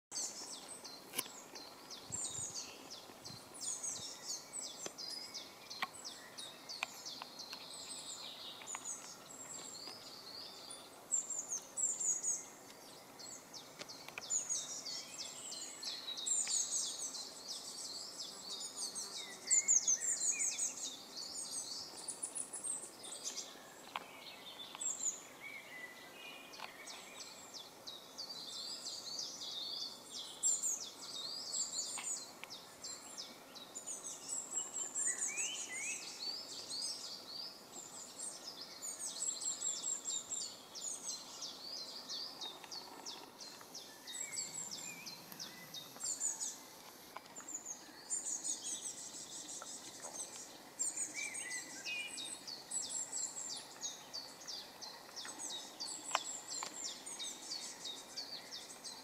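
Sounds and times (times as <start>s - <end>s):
songbirds singing and chirping: 0.0s - 59.0s.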